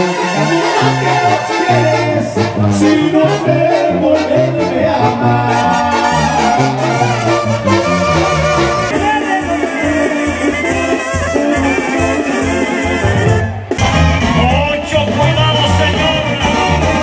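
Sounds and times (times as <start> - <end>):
brass band dance music: 0.0 - 17.0.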